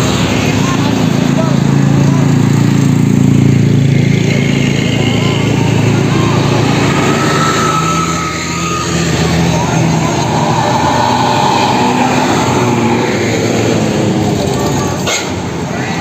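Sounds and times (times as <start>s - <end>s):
diesel bus engines droning: 0.0s - 16.0s
wavering high sound: 4.5s - 14.3s.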